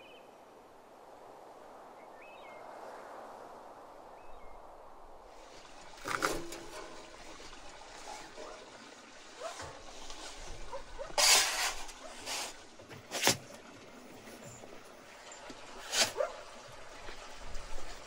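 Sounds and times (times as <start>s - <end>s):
wooden peel scraping on stone: 9.5s - 13.5s, 15.8s - 16.3s.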